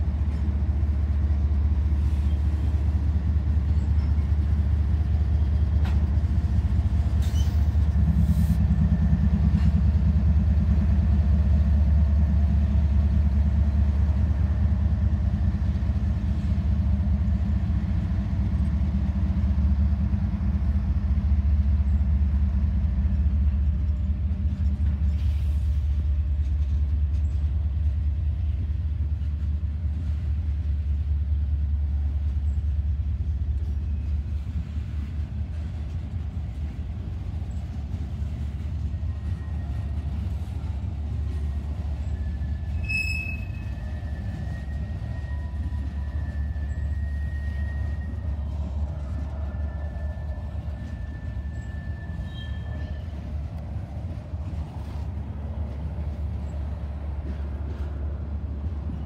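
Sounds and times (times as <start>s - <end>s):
diesel locomotive engine drone: 0.0s - 59.0s
freight train rumbling on rails: 0.0s - 59.0s.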